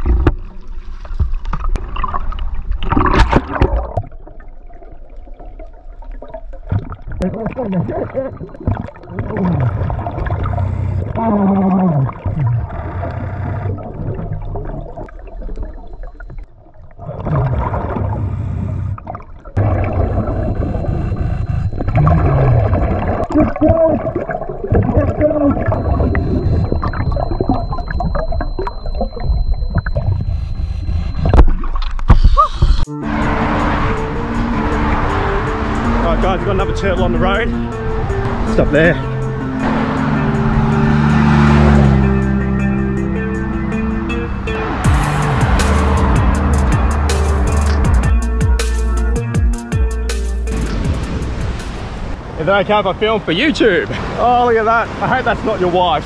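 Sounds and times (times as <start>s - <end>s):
air bubbling underwater: 1.3s - 30.5s
background music: 32.9s - 51.7s.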